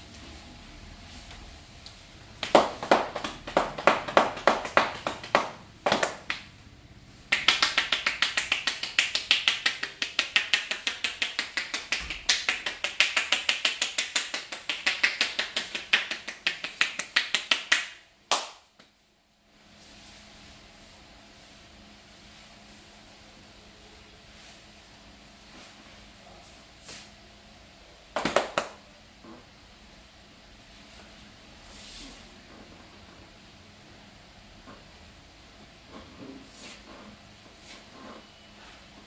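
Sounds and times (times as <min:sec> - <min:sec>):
hands slapping a head: 0:02.4 - 0:06.5, 0:07.3 - 0:18.9, 0:28.2 - 0:28.8.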